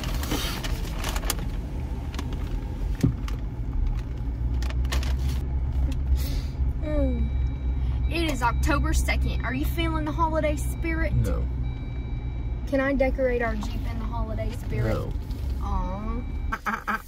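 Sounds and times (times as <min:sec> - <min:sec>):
engine and road rumble: 0:00.0 - 0:17.0
voice-like hum: 0:11.1 - 0:11.5.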